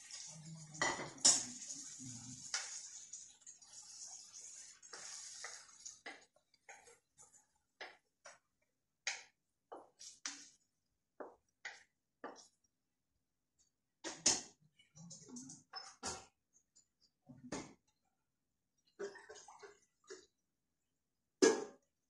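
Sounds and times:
meat sizzling: 0:03.8 - 0:06.0.

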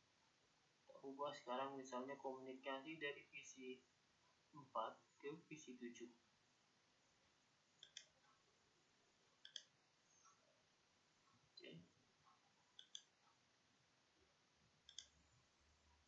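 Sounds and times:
computer mouse clicks: 0:07.8 - 0:08.4, 0:09.4 - 0:10.4, 0:12.3 - 0:13.4, 0:14.8 - 0:15.2.

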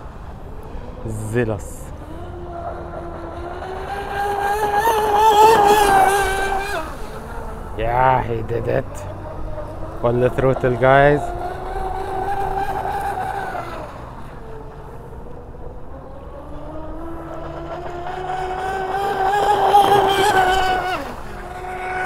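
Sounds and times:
electric motor whining: 0:00.0 - 0:22.0.

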